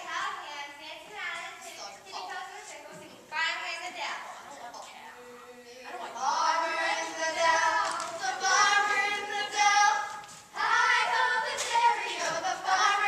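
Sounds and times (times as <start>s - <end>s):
children singing together: 5.7s - 13.0s.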